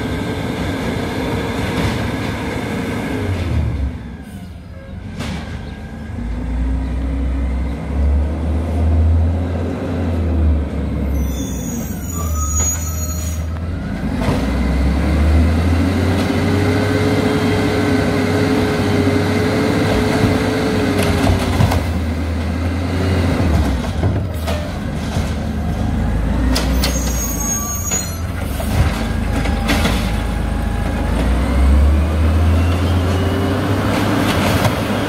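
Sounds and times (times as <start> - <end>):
brief high squeal: 11.0 - 13.6, 26.7 - 28.3.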